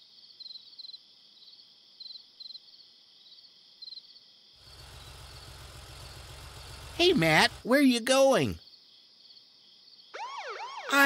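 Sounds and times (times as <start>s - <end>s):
crickets chirping: 0.0s - 10.8s
car engine rumble: 4.6s - 7.7s.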